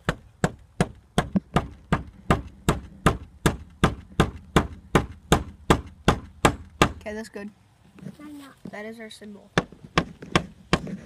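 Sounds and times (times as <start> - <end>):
hammer driving nail into wood: 0.0 - 7.0, 9.6 - 11.0.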